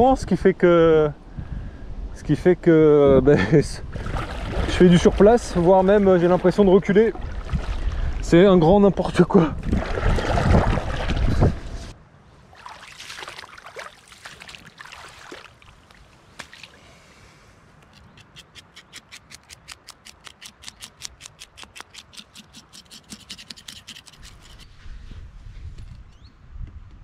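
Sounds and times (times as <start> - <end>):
wind buffeting microphone: 0.0 - 12.0, 24.2 - 27.0.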